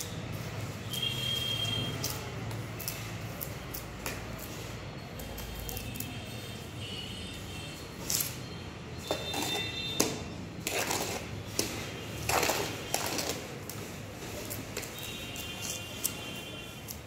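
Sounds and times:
trowel scraping wet adhesive: 9.0s - 17.0s.

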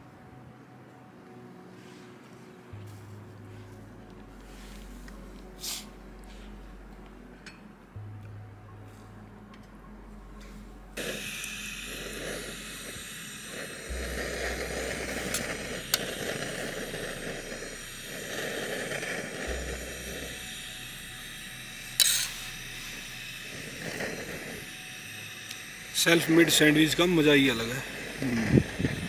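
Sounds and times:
steady hiss: 11.0s - 29.0s.

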